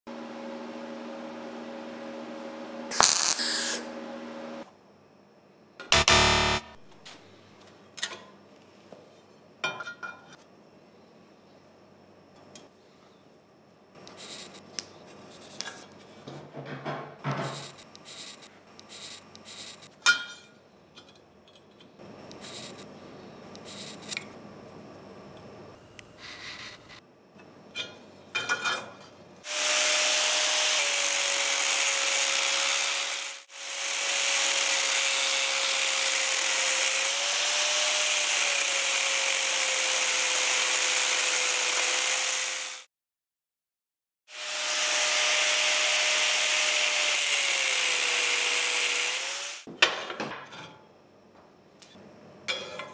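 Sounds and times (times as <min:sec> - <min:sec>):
angle grinder cutting steel: 0:02.9 - 0:03.9, 0:05.9 - 0:06.8, 0:29.5 - 0:42.9, 0:44.3 - 0:49.7.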